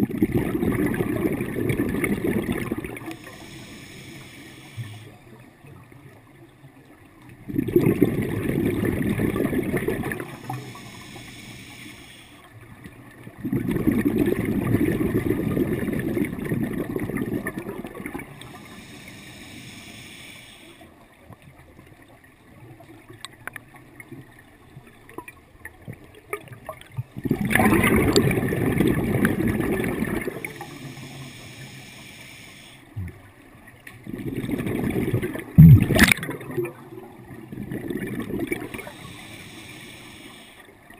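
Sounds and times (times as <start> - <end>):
exhaled bubbles gurgling underwater: 0.0 - 40.9
regulator hiss: 3.0 - 5.2, 10.2 - 12.5, 18.4 - 20.9, 30.3 - 32.9, 38.7 - 40.7.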